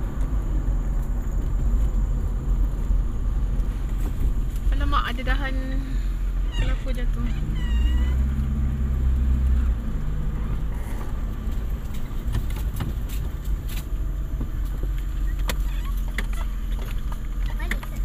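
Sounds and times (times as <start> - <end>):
car road and engine rumble: 0.0 - 18.0.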